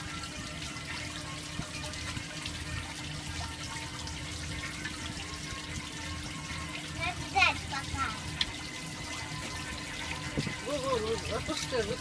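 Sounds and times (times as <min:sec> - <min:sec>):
water splashing from fountain jet: 0:00.0 - 0:12.0.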